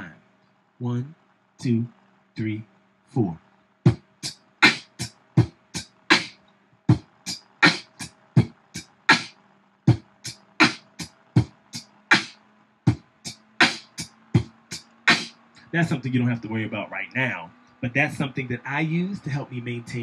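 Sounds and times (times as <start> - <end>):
beatboxing into a microphone: 17.0 - 20.0.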